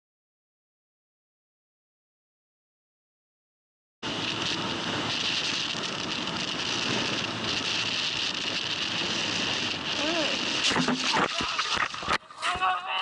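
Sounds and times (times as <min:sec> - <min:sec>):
wind and road noise: 0:04.0 - 0:12.3.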